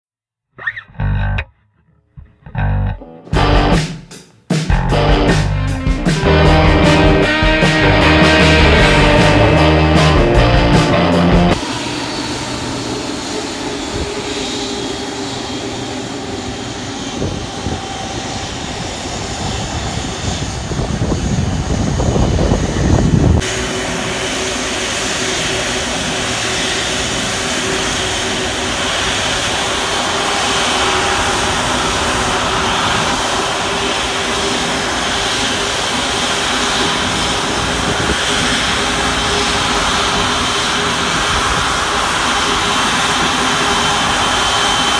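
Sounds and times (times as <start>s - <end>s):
rock music: 2.4s - 11.6s
rushing noise: 4.7s - 44.9s
jet engine whine: 4.8s - 44.9s.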